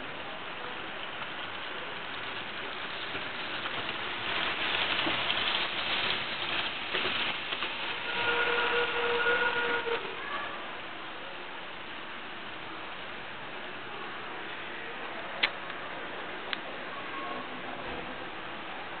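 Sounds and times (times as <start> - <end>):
model train wheels rattling on rails: 0.0 - 10.2
steady whine: 7.0 - 10.2.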